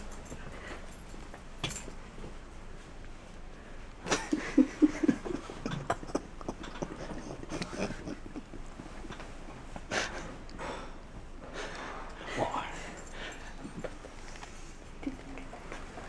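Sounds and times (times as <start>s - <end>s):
stifled giggling: 4.0s - 10.4s.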